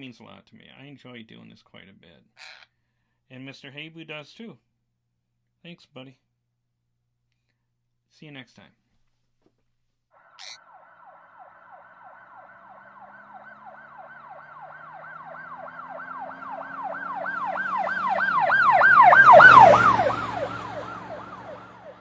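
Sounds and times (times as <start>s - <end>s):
emergency siren yelping: 10.2s - 22.0s
vehicle engine and road noise: 10.2s - 22.0s.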